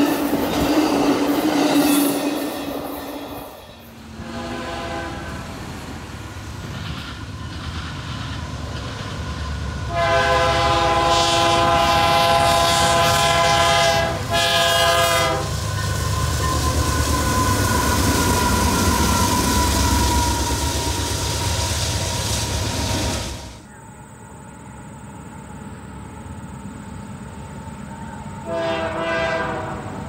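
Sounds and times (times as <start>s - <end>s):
diesel locomotive rumble: 0.0s - 30.0s
locomotive air horn blasts: 4.2s - 5.5s, 9.9s - 15.6s, 28.4s - 30.0s.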